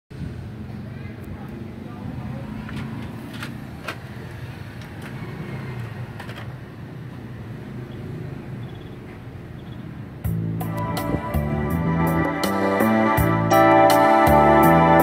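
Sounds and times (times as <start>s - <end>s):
music from speakers: 10.3s - 15.0s.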